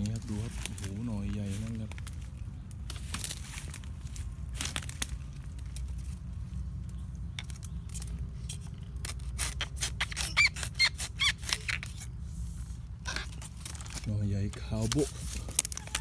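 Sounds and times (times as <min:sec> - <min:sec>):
dry leaves and twigs crackling: 0:00.0 - 0:16.0
short high squeaks: 0:09.4 - 0:12.1, 0:13.0 - 0:13.6.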